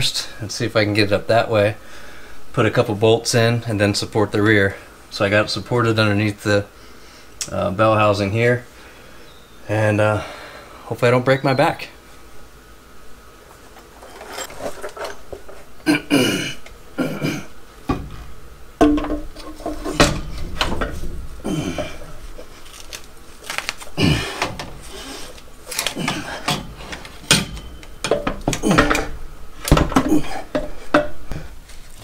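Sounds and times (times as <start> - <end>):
metal clunks and scraping: 13.5 - 15.8, 17.8 - 32.0
man grunting with effort: 21.4 - 22.1, 24.0 - 24.5, 28.5 - 29.2, 30.0 - 30.6.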